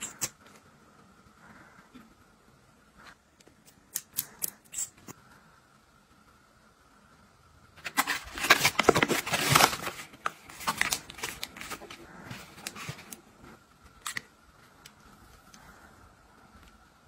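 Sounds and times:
packaging rustling and crinkling: 7.8 - 14.2.

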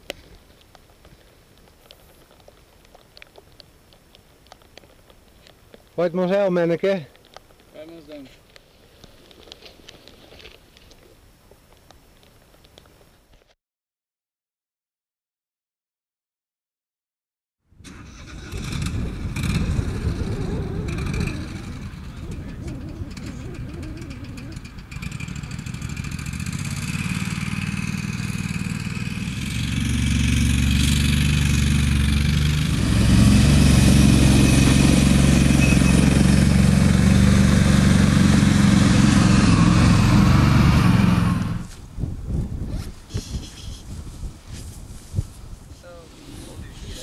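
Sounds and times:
vehicle engine droning: 17.8 - 41.7.

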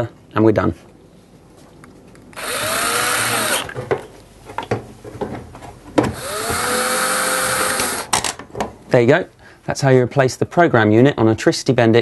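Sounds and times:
power screwdriver motor whine: 2.4 - 3.8, 6.2 - 8.1.

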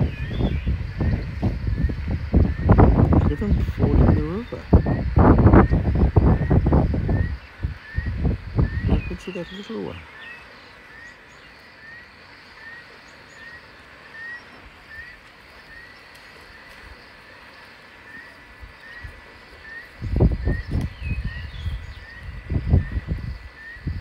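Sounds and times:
bird chirping: 0.0 - 1.3, 7.2 - 16.1, 18.1 - 23.0.

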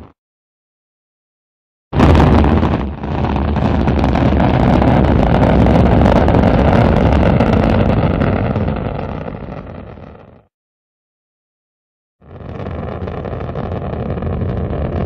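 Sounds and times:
rocket engine rumble: 2.0 - 10.3, 12.2 - 15.0.

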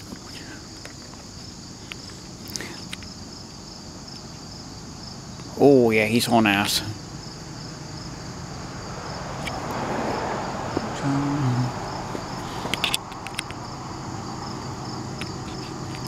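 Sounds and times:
crickets chirping: 0.0 - 16.0
rushing noise: 8.4 - 15.5
low voiced hum: 10.8 - 12.8
sharp clicks: 12.7 - 13.6.

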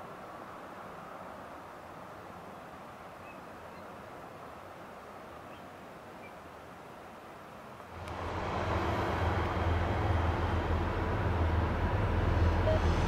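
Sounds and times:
faint outdoor noise: 0.0 - 13.0
diesel locomotives running: 7.9 - 13.0.

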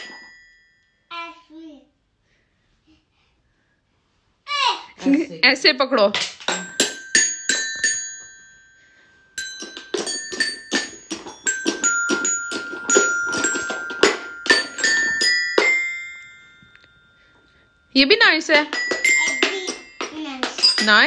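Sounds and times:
toy xylophone notes: 6.5 - 21.0.

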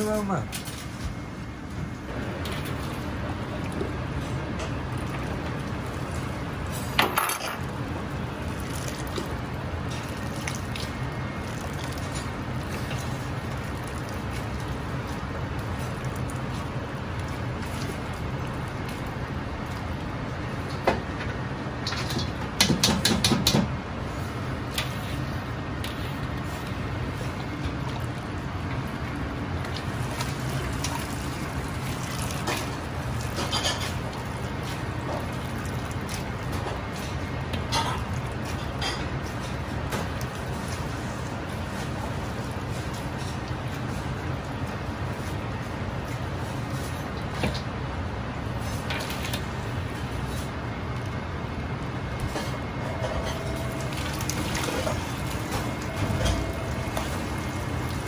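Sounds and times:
boiling pot rumble: 0.0 - 58.0.

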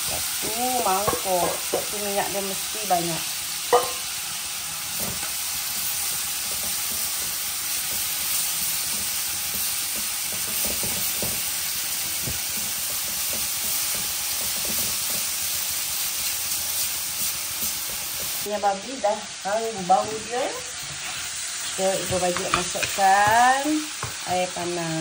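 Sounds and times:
spatula scraping and knocking pan: 0.0 - 2.4, 3.7 - 4.1, 6.0 - 15.7, 19.9 - 24.2
leaves sizzling in hot oil: 0.0 - 25.0.

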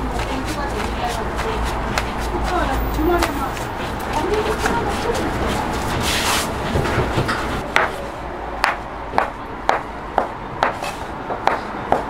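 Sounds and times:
hands rolling dough on board: 0.0 - 8.0.

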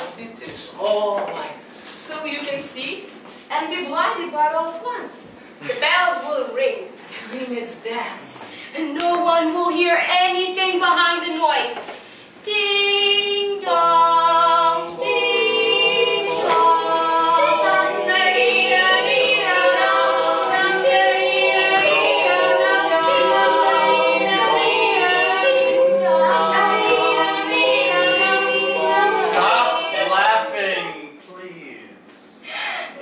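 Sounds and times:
voices singing a cappella: 12.4 - 31.1.

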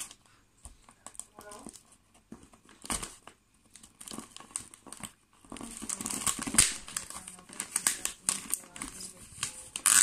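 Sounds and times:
packing tape crinkling and tearing: 0.0 - 0.2, 2.7 - 10.0.

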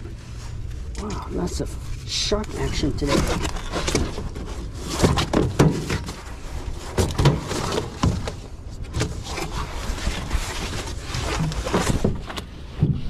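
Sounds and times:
steady low rumble: 0.0 - 4.8.

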